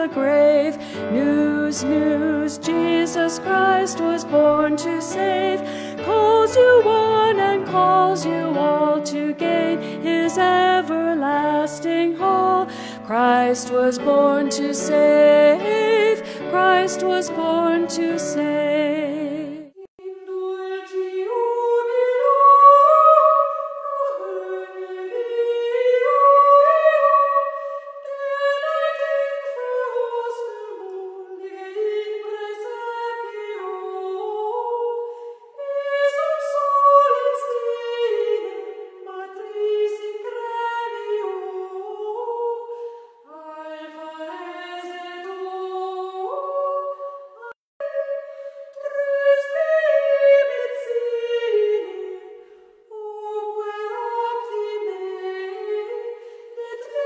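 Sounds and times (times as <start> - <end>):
singer breathing: 0.7 - 1.1, 5.6 - 6.1, 12.7 - 13.1, 16.2 - 16.5, 35.0 - 35.6, 42.7 - 43.3, 56.2 - 56.6.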